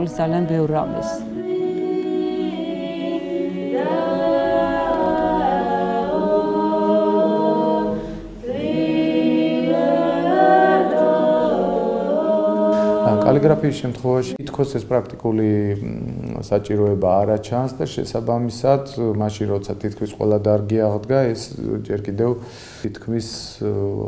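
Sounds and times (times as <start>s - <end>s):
women singing church chant: 0.0s - 14.4s.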